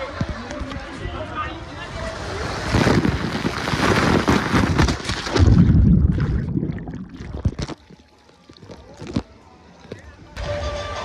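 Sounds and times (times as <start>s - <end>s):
water rushing: 1.6s - 9.2s
heavy low rumble: 5.4s - 7.7s.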